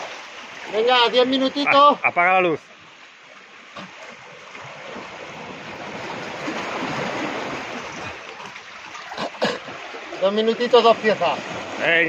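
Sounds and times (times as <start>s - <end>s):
sea wave surging on rocks: 4.6s - 12.0s.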